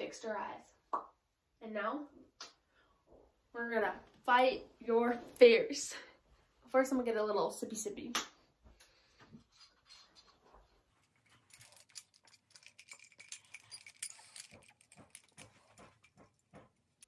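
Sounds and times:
glass and metal straw clicking: 0:11.8 - 0:15.5.

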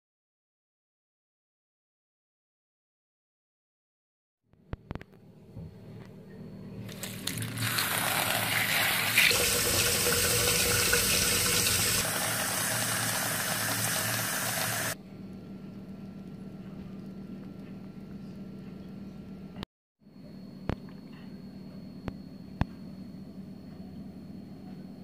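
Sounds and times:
water running into plastic bowl: 0:06.9 - 0:15.0.

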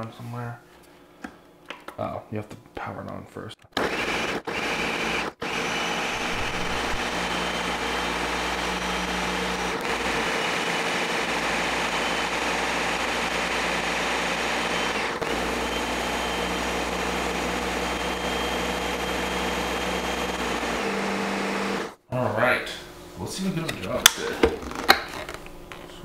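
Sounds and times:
blender running: 0:03.8 - 0:22.0.

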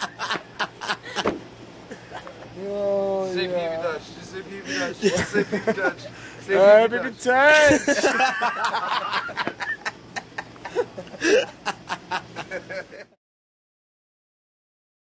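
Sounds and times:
man laughing: 0:00.0 - 0:02.8, 0:04.6 - 0:06.3, 0:07.5 - 0:13.2.

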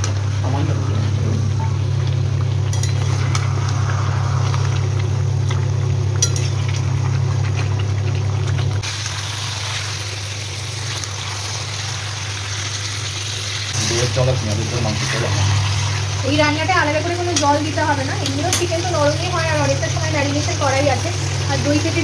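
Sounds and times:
low hum: 0:00.0 - 0:12.1
chicken sizzling in oil: 0:00.0 - 0:22.0.

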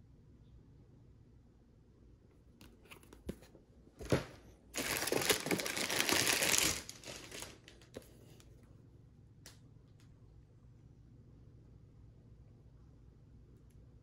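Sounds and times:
plastic packing crinkling and rustling: 0:04.0 - 0:08.1.

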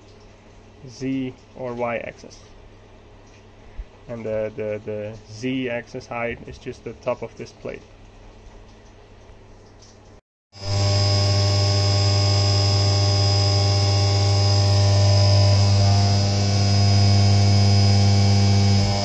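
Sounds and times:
milling machine humming and whining: 0:10.6 - 0:19.0.

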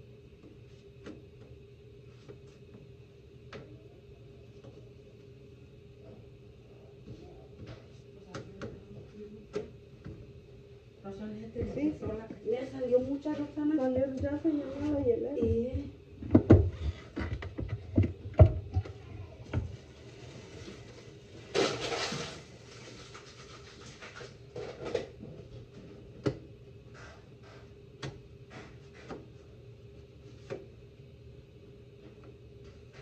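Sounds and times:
faint steady hum: 0:00.0 - 0:33.0
knocks and taps of tortilla press: 0:16.2 - 0:18.9.

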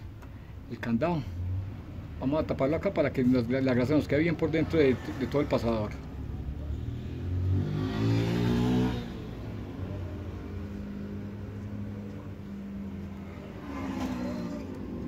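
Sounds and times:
vehicle engine revving: 0:04.4 - 0:15.0.

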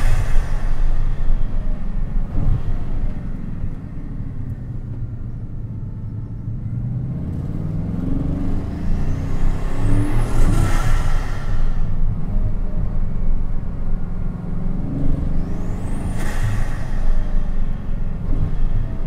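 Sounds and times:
rush of air: 0:00.0 - 0:03.9, 0:08.6 - 0:13.6, 0:15.2 - 0:19.0
car engine accelerating: 0:00.0 - 0:19.0.

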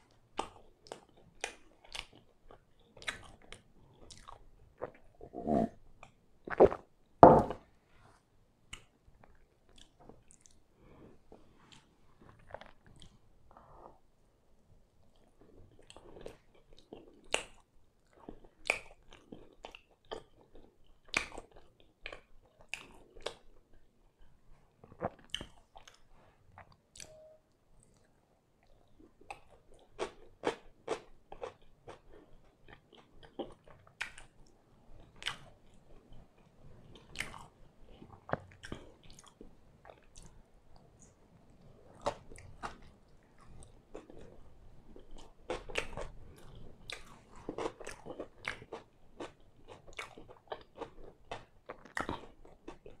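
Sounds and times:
person chewing: 0:00.4 - 0:05.7, 0:36.9 - 0:40.4, 0:41.8 - 0:53.0.

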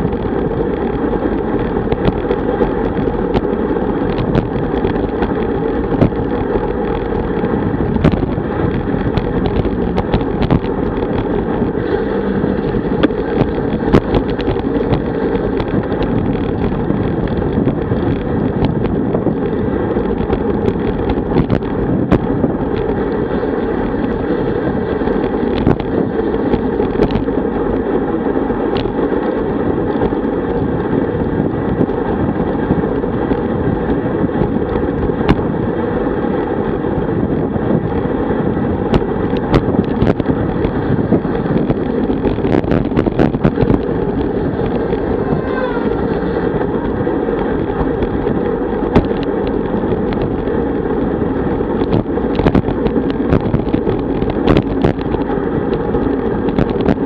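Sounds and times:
sharp clicks and knocks: 0:00.0 - 0:11.8, 0:12.6 - 0:23.0, 0:25.2 - 0:27.4, 0:28.7 - 0:29.0, 0:38.9 - 0:50.5, 0:51.8 - 0:57.0
tyre road noise: 0:00.0 - 0:57.0
wind rushing over microphone: 0:00.0 - 0:57.0.

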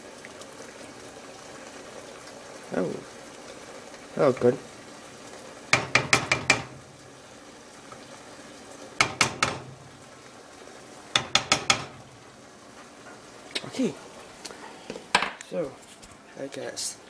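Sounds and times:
soup bubbling: 0:00.0 - 0:15.2
wooden spoon knocking metal saucepan: 0:05.7 - 0:06.9, 0:09.0 - 0:10.1, 0:11.1 - 0:12.1.

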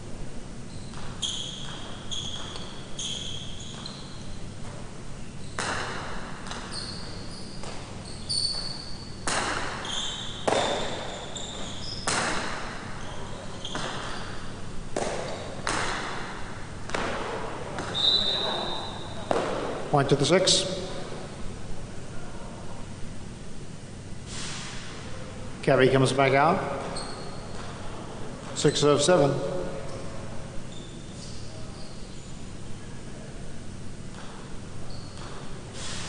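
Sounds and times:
shoes squeaking on court floor: 0:00.6 - 0:21.4, 0:26.5 - 0:32.6, 0:34.0 - 0:36.0
ball cracking against wall: 0:09.2 - 0:09.8, 0:10.4 - 0:11.1, 0:12.0 - 0:12.8, 0:14.9 - 0:16.3.

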